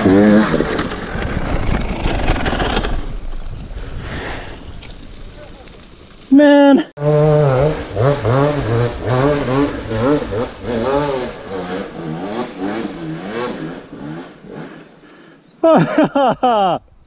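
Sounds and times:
dirt bike engine revving: 0:00.0 - 0:02.6, 0:07.0 - 0:15.8.

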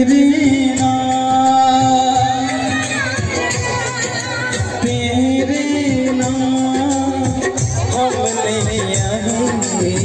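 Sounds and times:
film-style song music live: 0:00.0 - 0:10.0.

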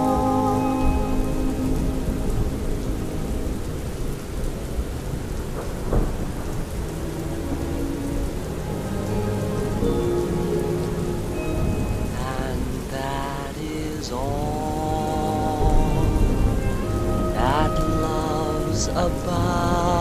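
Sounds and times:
rumbling thunder: 0:00.0 - 0:09.9, 0:15.3 - 0:20.0
faint music: 0:00.0 - 0:20.0
steady rain: 0:00.0 - 0:20.0
sharp thunder crack: 0:05.4 - 0:07.0.

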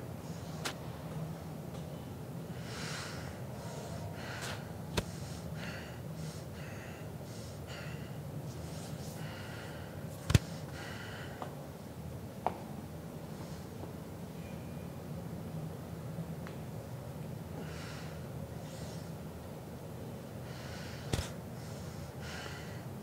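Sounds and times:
low steady hum: 0:00.0 - 0:23.0
man breathing hard: 0:02.6 - 0:11.6, 0:20.4 - 0:23.0.

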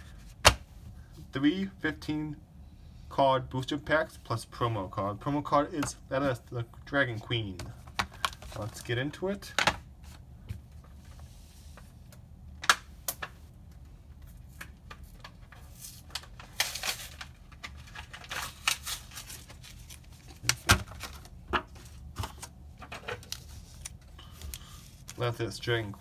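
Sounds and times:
plastic packaging tearing: 0:16.0 - 0:21.2.

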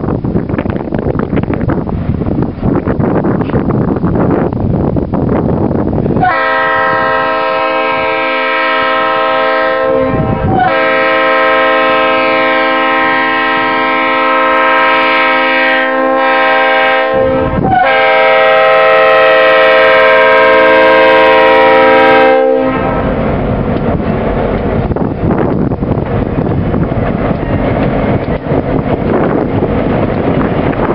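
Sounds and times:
locomotive engine and train rumble: 0:00.0 - 0:30.9
wind noise on microphone: 0:00.0 - 0:30.9
locomotive air horn blasts: 0:06.2 - 0:23.2.

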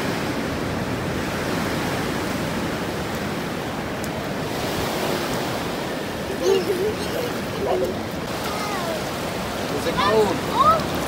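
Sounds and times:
waves breaking on beach: 0:00.0 - 0:11.0.

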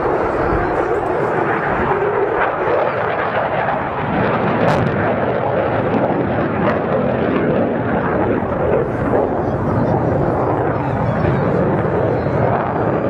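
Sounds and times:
fighter jet engine roar: 0:00.0 - 0:13.0.

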